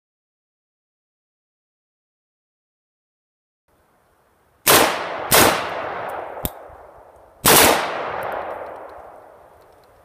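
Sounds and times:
rifle shots echoing: 4.6 - 6.7, 7.4 - 9.4
sharp metallic click: 6.0 - 6.6.

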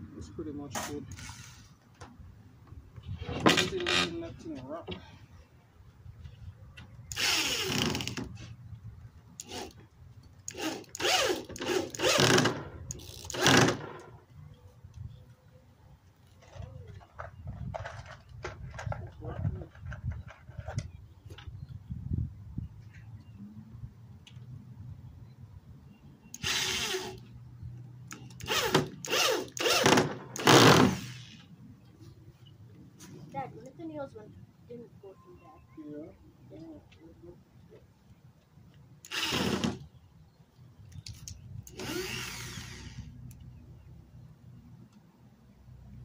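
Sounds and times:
electric drill driving screws: 7.1 - 8.3, 9.4 - 9.8, 10.5 - 14.0, 26.4 - 27.2, 28.4 - 31.4, 39.0 - 39.8, 41.7 - 43.1.

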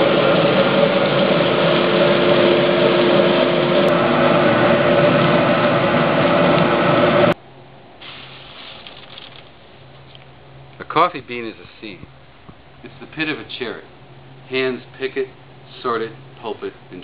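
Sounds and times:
coffee roaster running: 0.0 - 7.4, 8.0 - 12.1
hiss of tumbling beans: 8.0 - 10.2.

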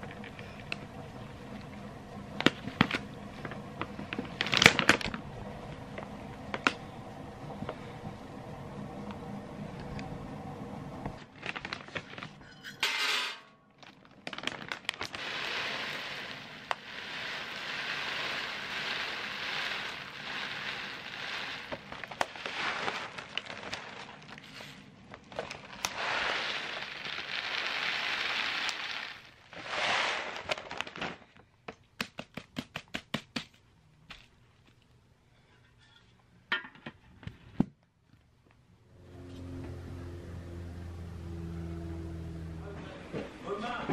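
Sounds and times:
dry pellets rustling and rattling: 2.4 - 5.1, 13.8 - 31.2.

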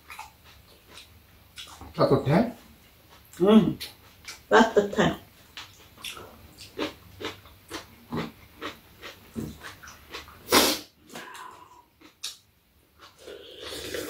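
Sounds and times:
chewing and lip-smacking: 0.0 - 2.0, 5.5 - 10.4
noodle slurp: 13.3 - 14.0.

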